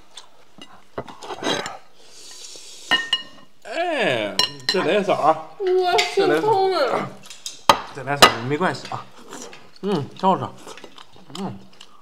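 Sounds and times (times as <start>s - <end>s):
person calling out: 3.7s - 4.5s, 5.6s - 7.2s
spoon clinking against bowl: 4.4s - 4.8s.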